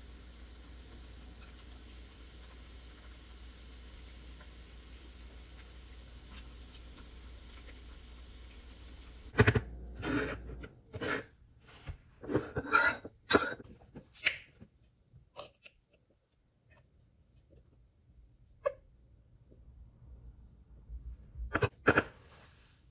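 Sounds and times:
oil sizzling: 0:00.0 - 0:09.4.

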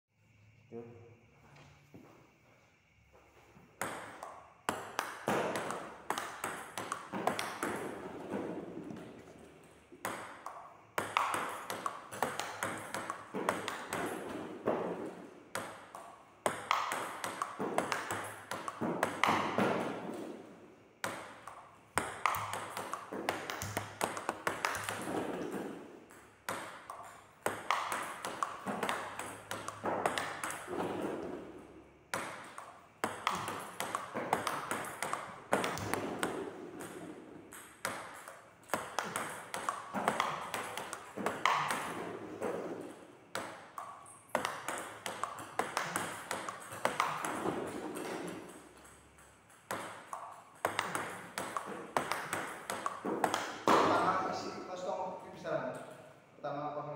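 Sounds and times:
table tennis ball clicking: 0:03.8 - 0:08.0, 0:10.0 - 0:14.3, 0:15.5 - 0:19.8, 0:21.0 - 0:30.7, 0:32.1 - 0:42.0, 0:43.3 - 0:53.8.

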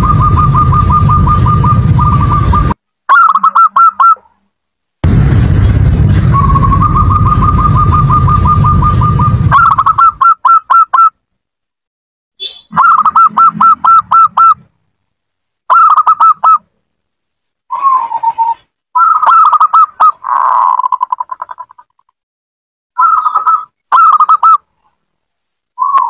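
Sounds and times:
dove cooing: 0:00.0 - 0:04.2, 0:12.8 - 0:14.6, 0:23.0 - 0:24.6.

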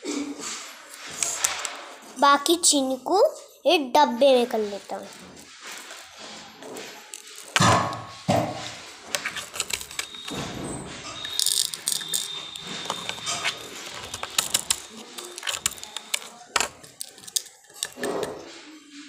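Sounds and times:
plastic containers clicking and rattling: 0:00.9 - 0:01.8, 0:04.5 - 0:18.5.

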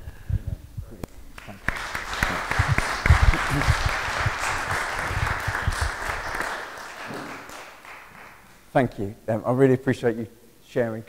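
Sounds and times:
congregation applauding: 0:01.4 - 0:08.7.

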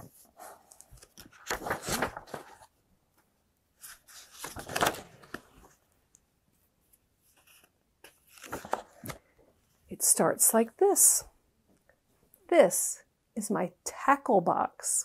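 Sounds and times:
book pages turning: 0:00.1 - 0:02.8, 0:03.8 - 0:05.8, 0:06.9 - 0:09.3.

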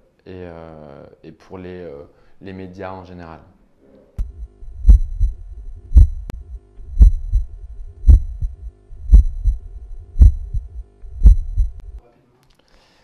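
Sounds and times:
deep heavy beat thuds: 0:04.2 - 0:12.0.

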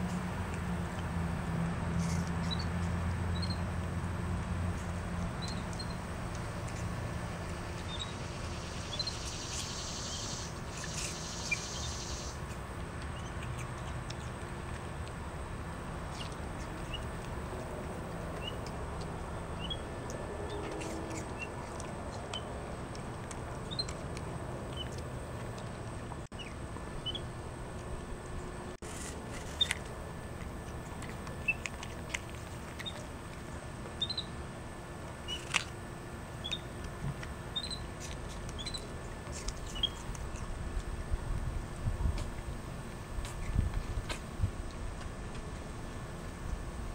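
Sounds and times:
low background hum: 0:00.0 - 0:46.9
monkey chewing apple: 0:12.4 - 0:34.4, 0:36.4 - 0:41.4.

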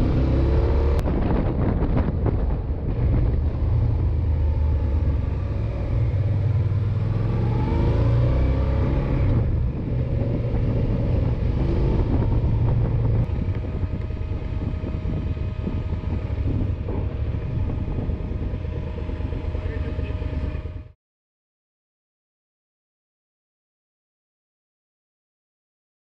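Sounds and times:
wind noise: 0:00.0 - 0:20.9
road noise: 0:00.0 - 0:21.0
motorcycle engine running: 0:08.7 - 0:20.9.

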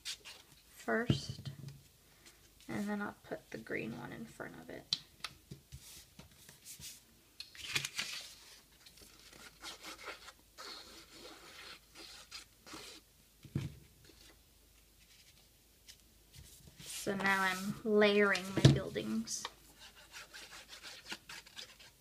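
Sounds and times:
paper rustling and scraping: 0:07.6 - 0:13.0, 0:15.0 - 0:22.0.

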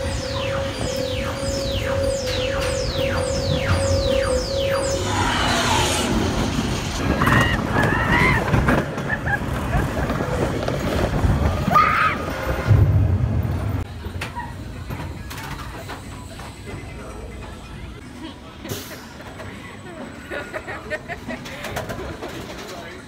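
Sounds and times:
falling electronic sweeps: 0:00.0 - 0:08.6
roller coaster rumbling on track: 0:00.0 - 0:23.0.

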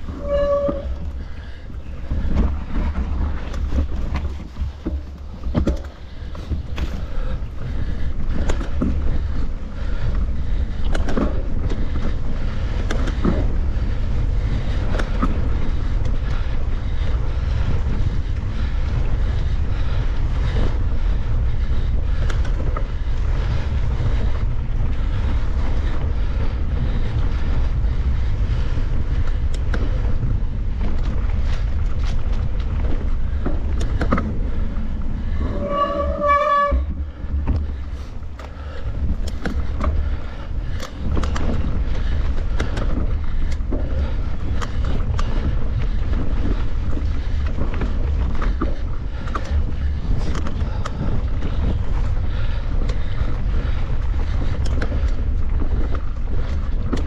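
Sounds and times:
bike knocks and rattles: 0:00.0 - 0:57.0
wind rumble on microphone: 0:00.0 - 0:57.0
pulsing high squeal: 0:00.1 - 0:01.0, 0:35.4 - 0:37.0.

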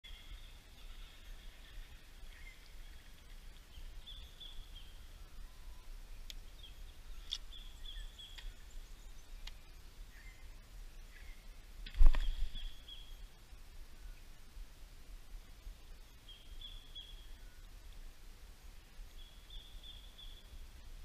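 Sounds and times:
birds chirping: 0:00.0 - 0:13.3, 0:16.0 - 0:17.8, 0:18.8 - 0:20.7
faint clicks: 0:06.2 - 0:06.4, 0:08.3 - 0:08.6, 0:09.4 - 0:09.6.

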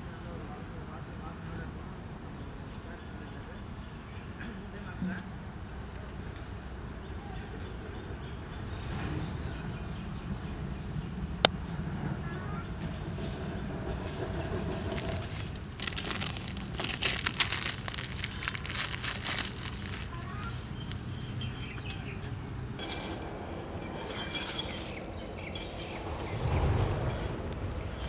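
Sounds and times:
bird chirping: 0:13.2 - 0:28.0
rustling in dry soil and leaves: 0:14.6 - 0:28.0.

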